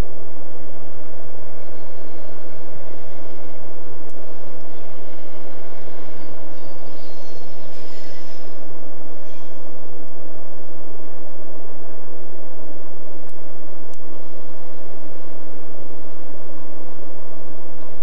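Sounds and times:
freight train rumbling: 0:00.0 - 0:18.0
high wheel squeals: 0:05.2 - 0:09.8.

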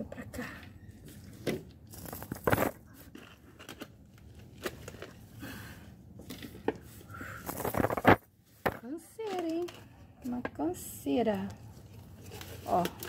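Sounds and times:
faint clicks and rustles: 0:06.2 - 0:10.6, 0:11.3 - 0:13.0.

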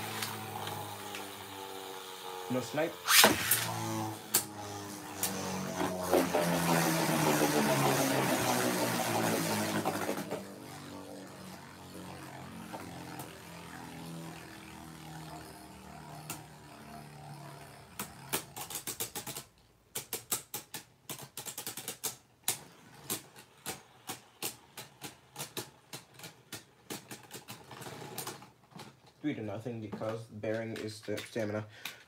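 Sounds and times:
spinning tops whirring: 0:00.0 - 0:19.4
spinning tops clacking together: 0:03.0 - 0:03.8.

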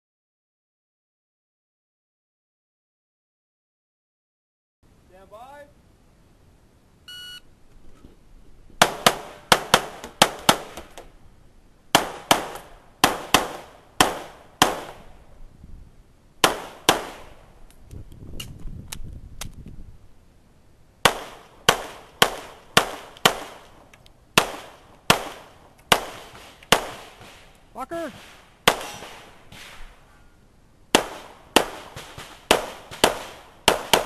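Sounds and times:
shot timer beep: 0:07.1 - 0:07.4
handgun firing shots: 0:08.8 - 0:10.9, 0:16.4 - 0:17.3, 0:21.0 - 0:23.7, 0:24.4 - 0:27.4, 0:28.1 - 0:29.8, 0:30.9 - 0:34.0.

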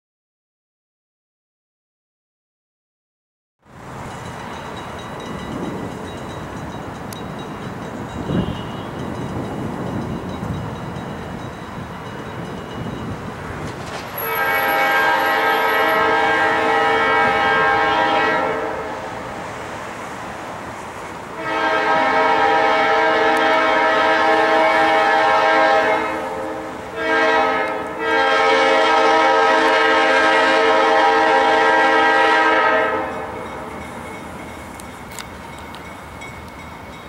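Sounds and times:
locomotive air horn blasts: 0:08.2 - 0:09.1, 0:14.1 - 0:19.2, 0:21.3 - 0:33.4.

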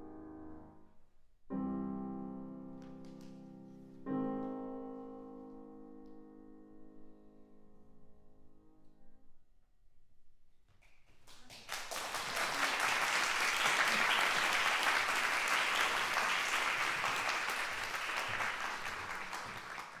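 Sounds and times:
audience applause: 0:11.1 - 0:20.0.

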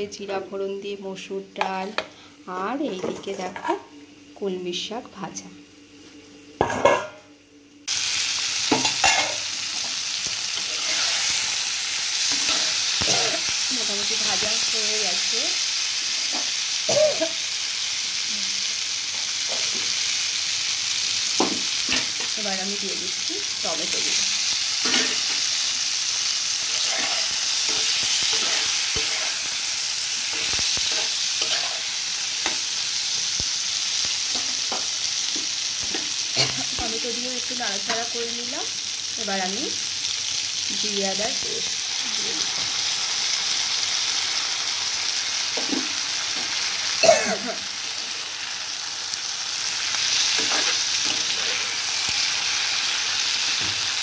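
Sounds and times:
vegetables sizzling in hot oil: 0:00.0 - 0:54.0
utensil scraping a pan: 0:10.6 - 0:11.3, 0:26.7 - 0:29.5, 0:30.3 - 0:31.8.

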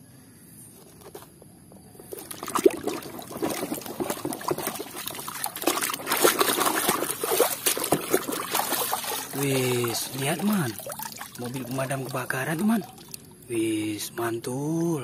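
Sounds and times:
water splashing in a tub: 0:02.0 - 0:13.5.

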